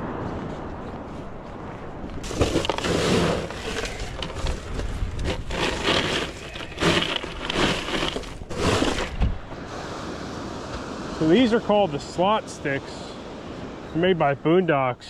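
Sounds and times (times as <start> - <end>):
fish put into plastic cooler: 2.2 - 9.2.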